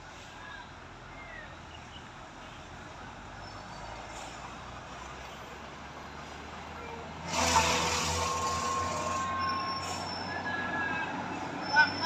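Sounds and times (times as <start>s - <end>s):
heavy truck climbing: 3.9s - 12.0s
loud air hiss: 7.3s - 9.2s.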